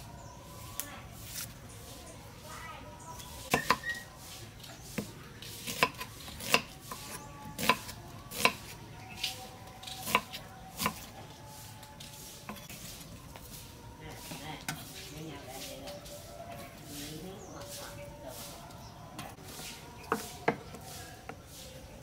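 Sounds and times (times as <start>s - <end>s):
knife chopping on wooden board: 3.5s - 3.9s, 5.0s - 8.8s, 10.0s - 11.1s, 20.0s - 21.4s.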